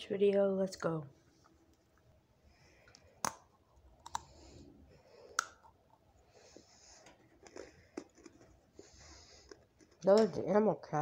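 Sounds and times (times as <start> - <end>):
crackers crunched and chewed: 3.0 - 4.5, 7.0 - 10.3.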